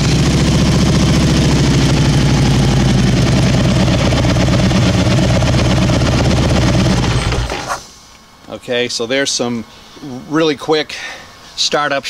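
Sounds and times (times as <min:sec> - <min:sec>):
motorcycle engine idling: 0:00.0 - 0:07.7.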